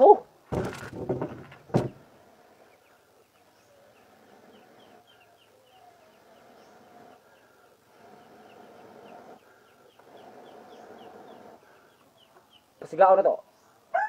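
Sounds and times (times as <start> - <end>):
distant chickens: 0.0 - 14.0
small birds chirping: 0.0 - 14.0.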